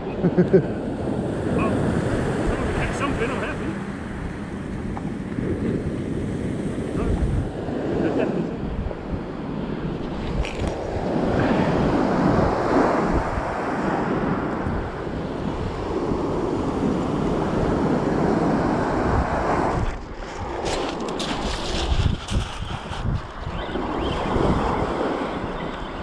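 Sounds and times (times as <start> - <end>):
wind buffeting microphone: 0.0 - 26.0
waves breaking on shingle: 19.8 - 23.9.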